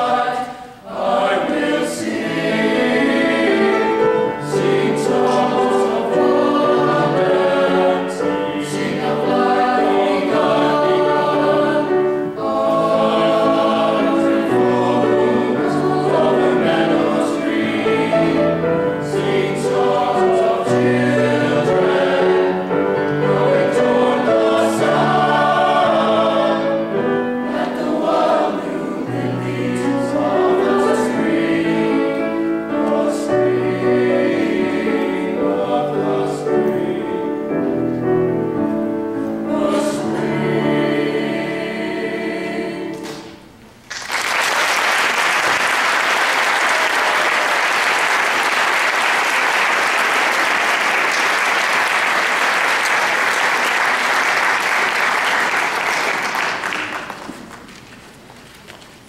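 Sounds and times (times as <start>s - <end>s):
men's choir singing: 0.0s - 37.8s, 39.1s - 43.4s
piano accompaniment: 0.0s - 43.8s
audience applause: 43.9s - 57.8s.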